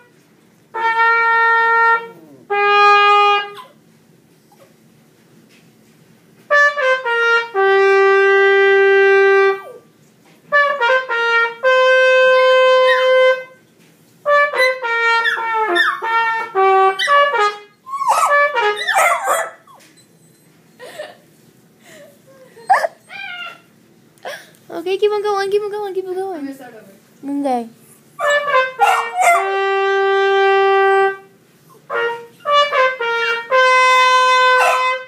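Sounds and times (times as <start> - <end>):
trumpet playing: 0.0 - 3.8, 6.5 - 9.8, 10.5 - 19.7, 28.2 - 35.0
faint yelps: 17.9 - 20.0, 22.4 - 23.7
wavering sliding cries: 22.3 - 23.7.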